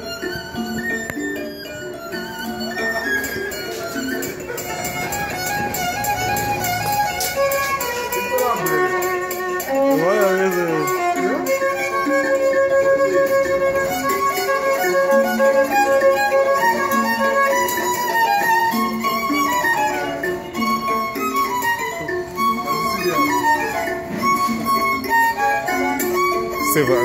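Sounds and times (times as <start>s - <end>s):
violin melody: 0.0s - 27.0s.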